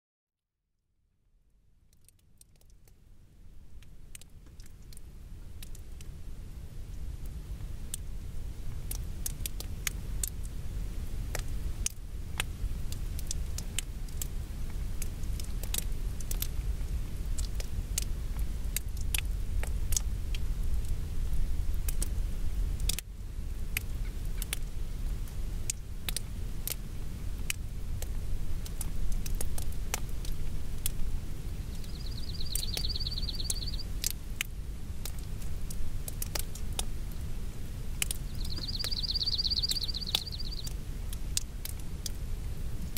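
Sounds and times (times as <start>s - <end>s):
raindrops ticking: 1.8s - 3.1s, 3.8s - 6.1s, 8.7s - 10.6s, 11.3s - 22.2s, 22.8s - 23.1s, 23.7s - 37.3s, 37.9s - 42.9s
wind rumbling: 26.4s - 42.9s.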